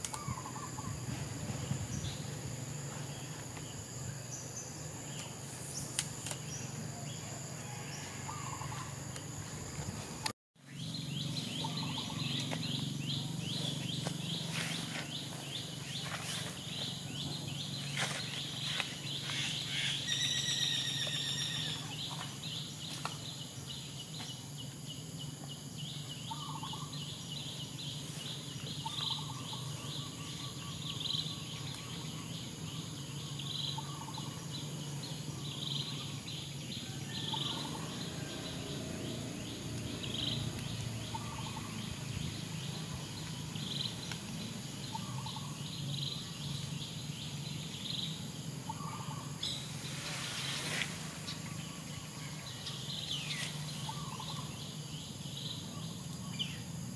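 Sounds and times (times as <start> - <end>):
insects chirping: 0.0 - 56.9
whistled bird call: 19.7 - 22.2.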